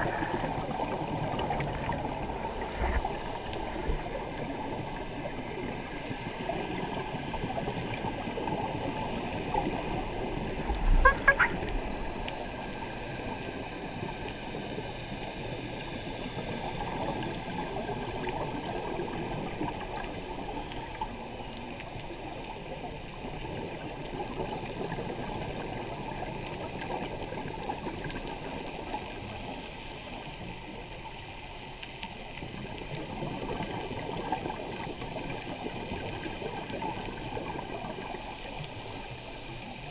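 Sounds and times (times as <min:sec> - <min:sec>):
bubbles gurgling: 0:00.0 - 0:12.0
regulator hiss: 0:02.2 - 0:04.5, 0:11.8 - 0:17.9, 0:19.8 - 0:21.2.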